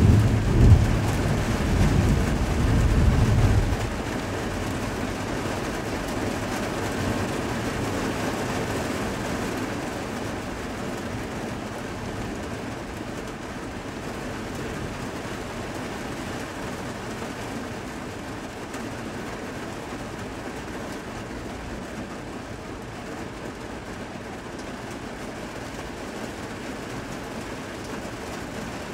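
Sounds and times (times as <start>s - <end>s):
low rumble of thunder: 0.0s - 5.3s
heavy rain falling: 0.0s - 28.9s.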